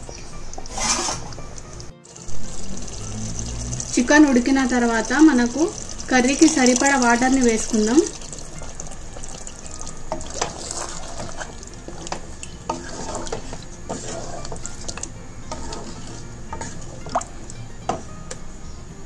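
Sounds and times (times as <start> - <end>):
wooden spatula stirring thick curry: 8.3 - 17.3
spatula knocking and scraping pot: 8.6 - 18.4.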